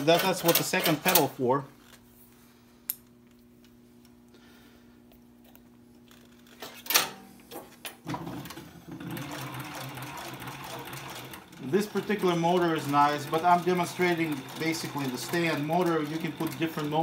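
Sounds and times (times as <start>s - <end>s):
sewing machine running: 0.0s - 1.3s, 8.1s - 17.0s
faint steady hum: 0.0s - 12.0s.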